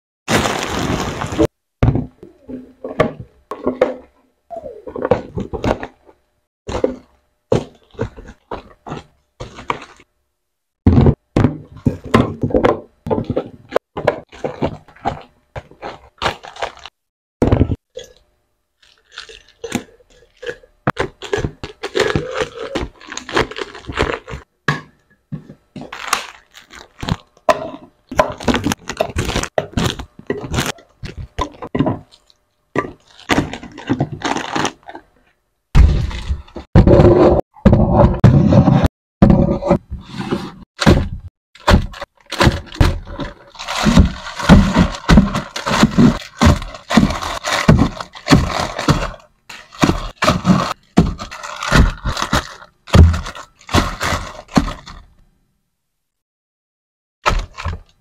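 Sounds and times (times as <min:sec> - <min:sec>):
plastic wrappers crinkling: 0:00.3 - 0:01.5, 0:14.3 - 0:17.0, 0:18.8 - 0:24.5, 0:25.8 - 0:35.1, 0:41.6 - 0:55.1.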